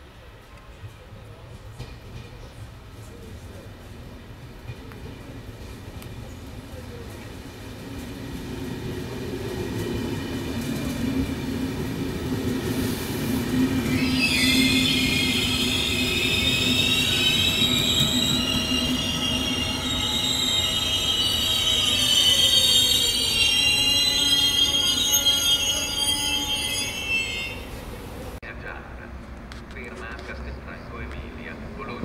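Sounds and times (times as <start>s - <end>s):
train rumbling past: 0.2s - 32.0s
high metallic wheel squeal: 13.8s - 27.8s.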